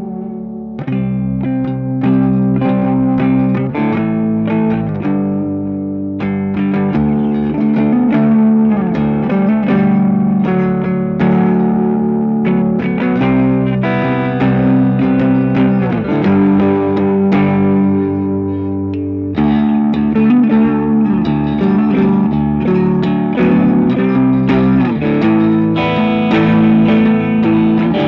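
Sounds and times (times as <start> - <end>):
electric guitar lead line: 0.0 - 28.0.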